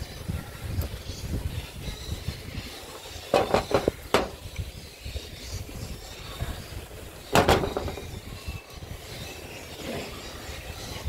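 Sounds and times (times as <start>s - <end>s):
knocks of hand tool: 3.4s - 4.4s.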